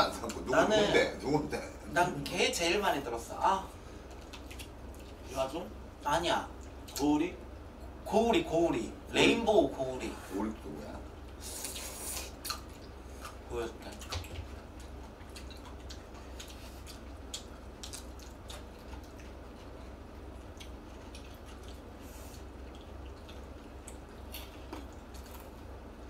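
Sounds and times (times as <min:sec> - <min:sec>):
low steady hum: 0:00.0 - 0:26.0
wet chewing and slurping: 0:11.2 - 0:25.7.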